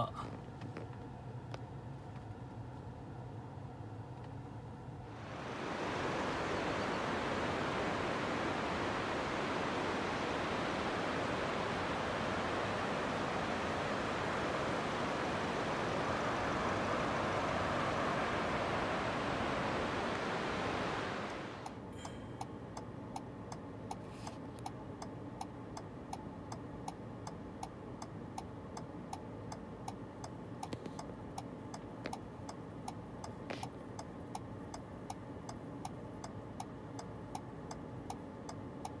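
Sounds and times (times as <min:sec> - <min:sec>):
car indicator ticking: 0:24.6 - 0:39.0.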